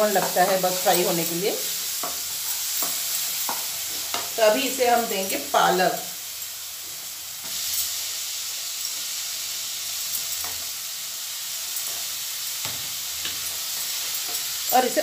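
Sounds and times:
masala sizzling in a pan: 0.0 - 15.0.

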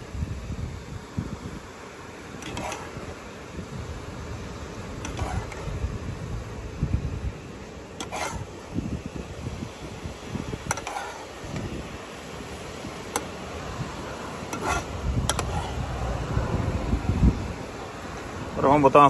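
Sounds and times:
metal spoon scraping metal pot: 2.4 - 2.9, 5.0 - 5.7, 8.0 - 8.6, 10.6 - 11.4, 14.5 - 15.8
low rumble: 15.1 - 17.7.

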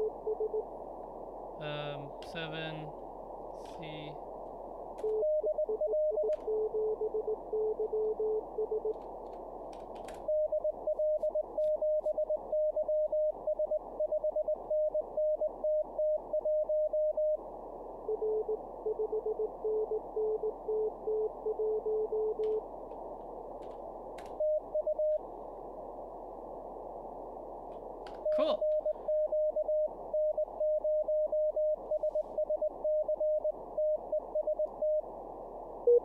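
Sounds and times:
radio static: 1.0 - 4.9
keyboard clicks: 8.9 - 10.3, 23.6 - 24.4.

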